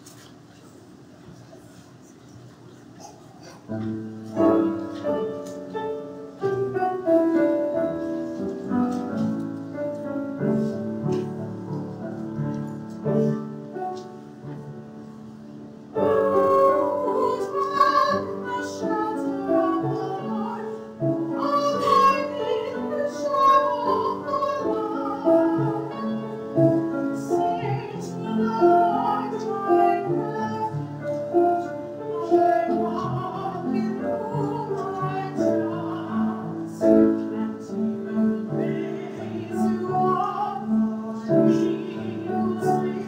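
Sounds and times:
piano playing slow chords: 3.7 - 43.0
woman singing: 16.0 - 43.0.

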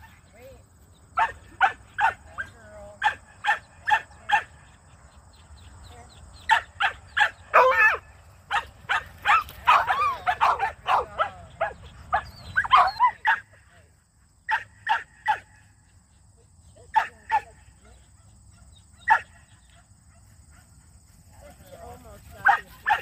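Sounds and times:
dog barking: 1.2 - 4.6, 6.5 - 13.5, 14.5 - 15.5, 16.9 - 20.7, 22.4 - 23.0.

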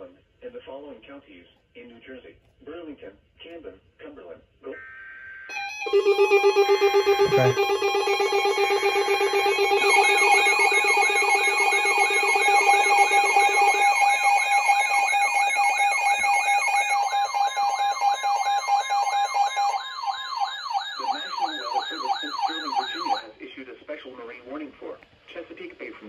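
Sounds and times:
low buzzy tone: 5.5 - 13.9
steady beeping tones: 5.5 - 23.2
warbling alarm tones: 5.5 - 23.2.

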